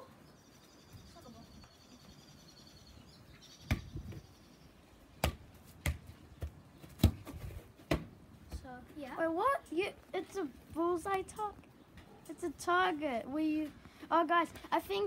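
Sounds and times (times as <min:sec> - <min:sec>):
ball thudding off foot: 0:05.2 - 0:08.6.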